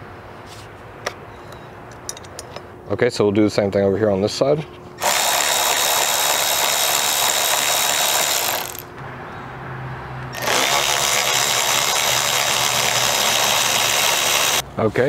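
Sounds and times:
cordless power tool whining: 5.0s - 8.9s, 10.3s - 14.6s.

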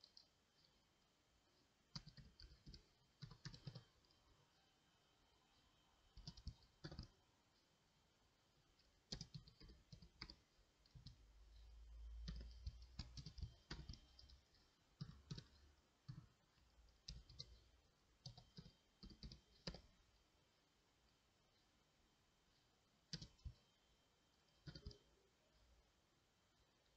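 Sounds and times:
keyboard keys clicking: 2.0s - 3.9s, 9.1s - 10.4s, 12.2s - 14.4s, 24.6s - 25.0s.

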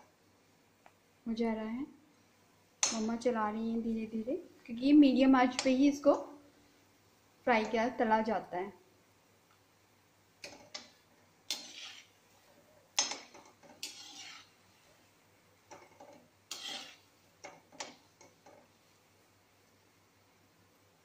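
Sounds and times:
metal spoon scraping a pan: 11.5s - 12.2s, 13.0s - 14.7s, 15.7s - 18.6s.

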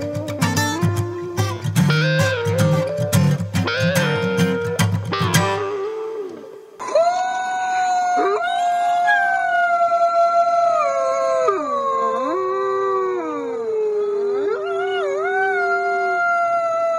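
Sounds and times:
wolves howling: 5.8s - 16.9s.

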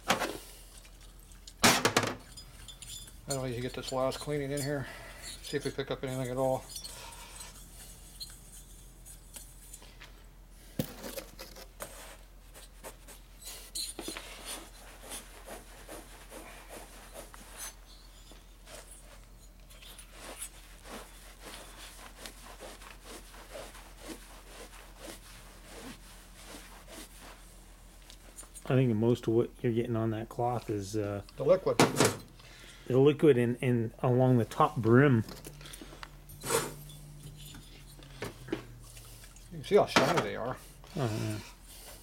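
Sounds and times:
cloth rubbing inside metal bore: 2.2s - 9.9s, 12.0s - 29.0s.

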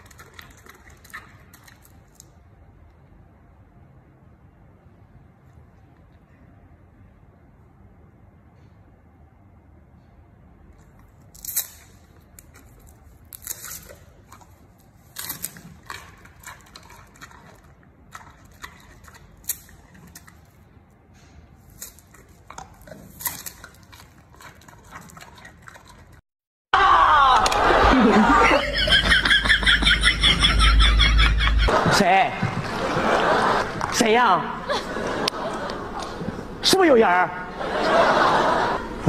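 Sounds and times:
wet chewing: 0.0s - 2.4s, 10.8s - 20.9s, 21.5s - 26.2s
panda crunching bamboo: 11.3s - 20.6s, 21.6s - 26.2s.

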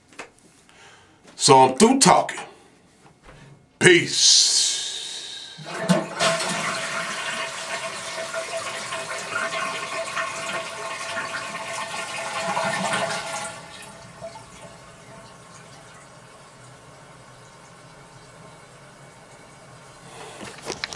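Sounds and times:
toilet flushing: 4.8s - 20.6s.

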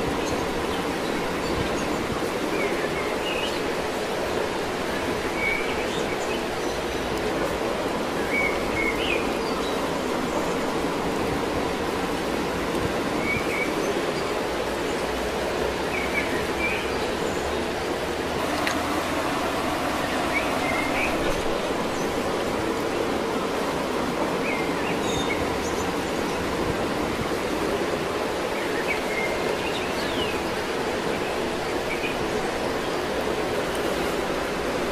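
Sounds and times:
steady rushing outdoor noise: 0.0s - 34.9s.

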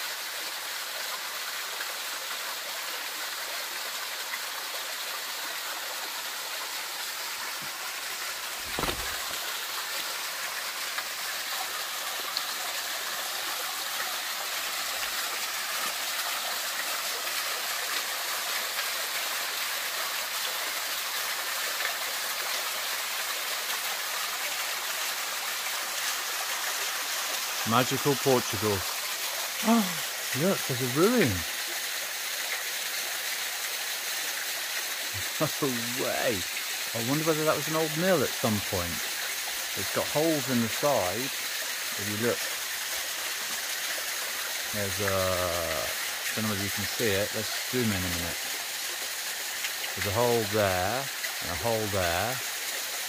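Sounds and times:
waterfall splashing into pool: 0.0s - 53.0s.

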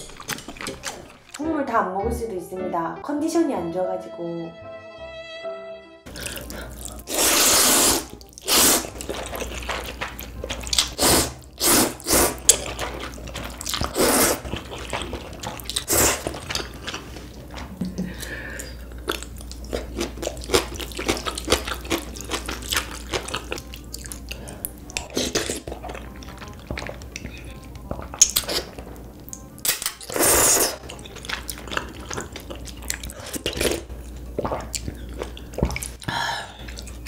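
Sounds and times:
person slurping noodles: 6.1s - 9.9s, 10.7s - 17.3s, 30.1s - 30.8s.

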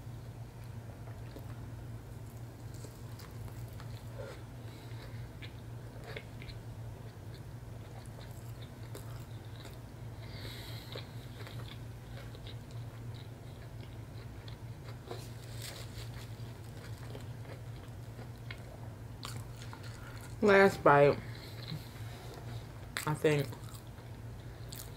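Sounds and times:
steady low hum: 0.0s - 24.9s
person chewing and biting: 2.3s - 20.4s, 21.4s - 24.9s.

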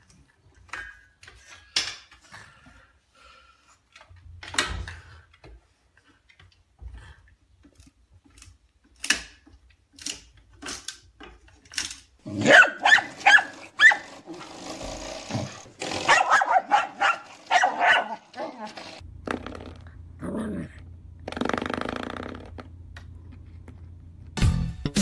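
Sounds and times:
dog barking and growling: 12.2s - 14.7s, 15.3s - 19.0s, 20.2s - 20.8s.

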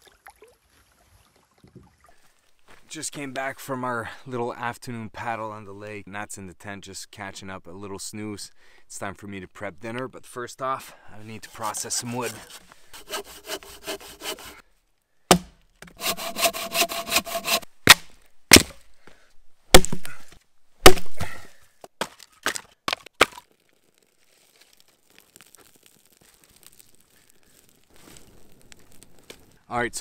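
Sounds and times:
hand saw rasping through wood: 11.4s - 14.6s, 16.0s - 17.7s
wood splitting cracks: 15.3s - 16.0s, 17.8s - 18.8s, 19.7s - 20.2s, 20.8s - 21.4s, 22.0s - 29.6s.

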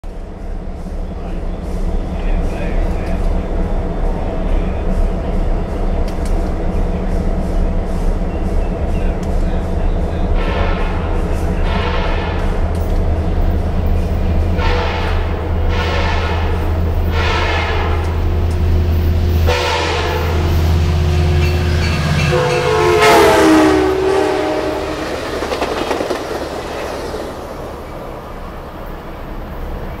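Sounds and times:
train wheel clatter: 0.0s - 30.0s
locomotive horn blasts: 10.4s - 12.6s, 14.4s - 18.4s, 19.4s - 25.3s.

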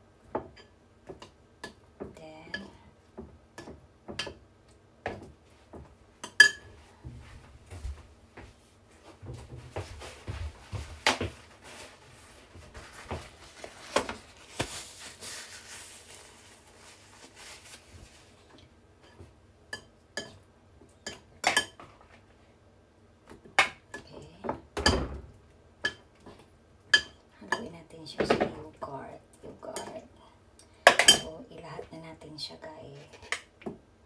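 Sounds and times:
utensils clinking against dishes: 6.3s - 6.7s.

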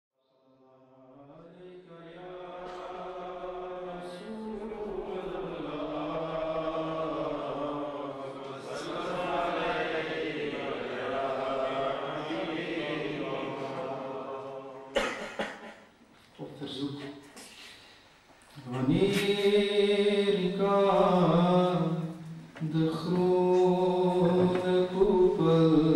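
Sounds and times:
man chanting: 18.6s - 25.9s.

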